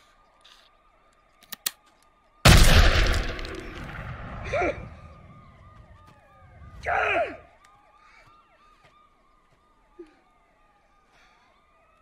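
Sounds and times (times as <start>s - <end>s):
faint police sirens wailing: 0.0s - 12.0s
pistol clicks: 1.4s - 2.1s
gunshot with echo: 2.5s - 4.8s.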